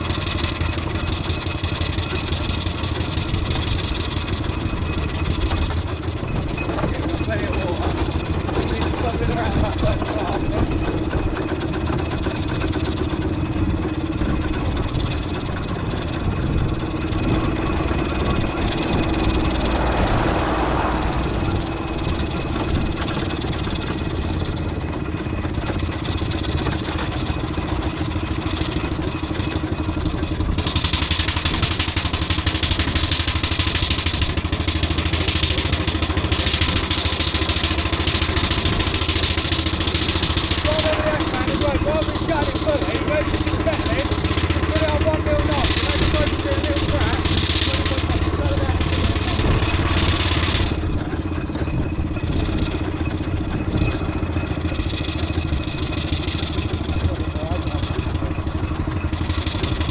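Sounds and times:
vehicle humming along a road: 0:00.0 - 0:59.9.

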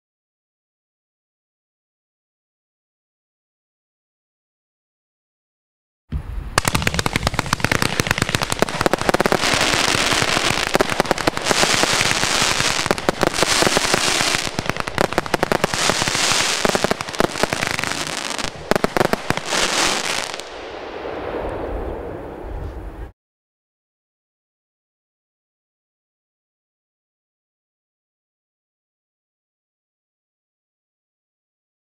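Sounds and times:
firework launch thumps and bursts: 0:06.6 - 0:18.1
firework crackling: 0:06.6 - 0:22.3.

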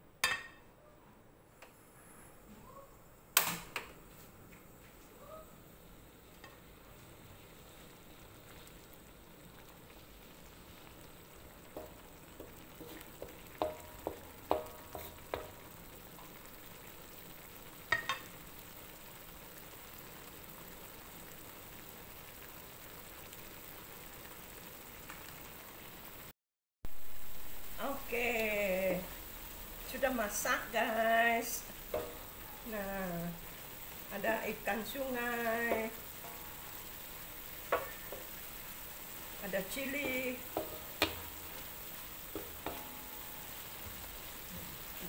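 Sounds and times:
food sizzling in a wok: 0:03.4 - 0:26.3, 0:26.9 - 0:45.0
spatula knocking on wok: 0:11.6 - 0:16.4, 0:17.9 - 0:18.3, 0:31.8 - 0:32.7, 0:35.5 - 0:44.0.

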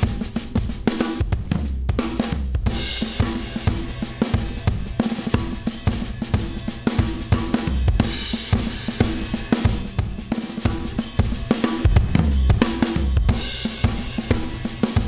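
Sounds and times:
drum kit playing groove: 0:00.0 - 0:15.0.

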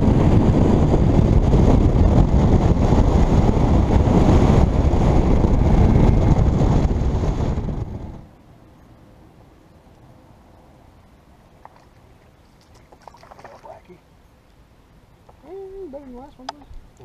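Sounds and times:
wind buffeting microphone: 0:00.0 - 0:08.3.

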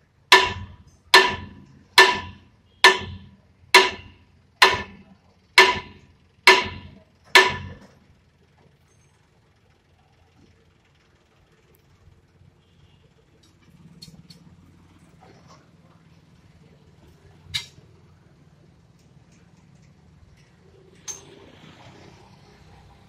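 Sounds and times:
hammer striking metal: 0:00.3 - 0:07.9.

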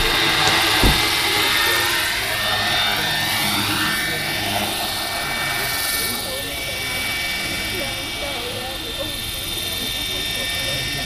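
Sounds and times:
rc helicopter motor whine: 0:00.0 - 0:11.0
low thump: 0:00.5 - 0:01.2.

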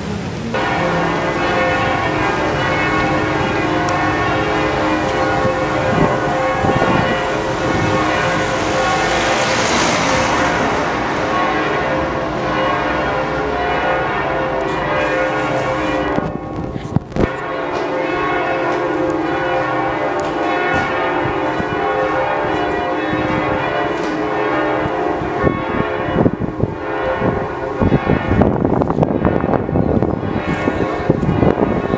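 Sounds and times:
church bells pealing: 0:00.0 - 0:31.9.

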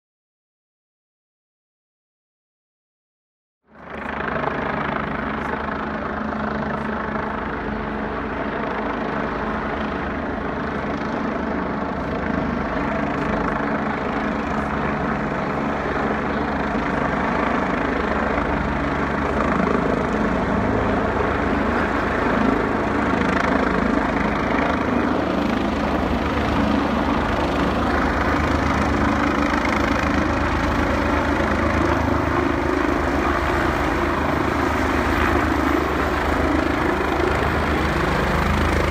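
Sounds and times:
helicopter engine noise: 0:03.7 - 0:38.9
helicopter rotor beating: 0:03.7 - 0:38.9.

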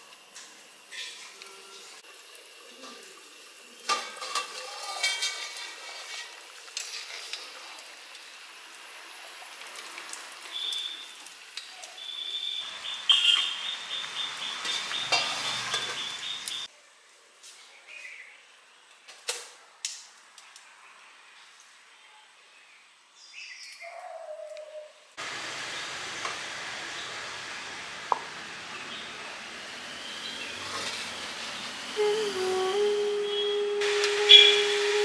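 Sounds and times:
food sizzling: 0:00.0 - 0:16.7, 0:25.2 - 0:35.0.

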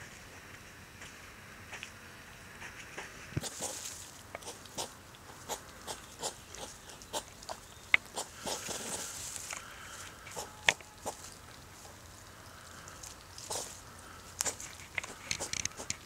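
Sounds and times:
hedgehogs huffing: 0:03.4 - 0:16.0.

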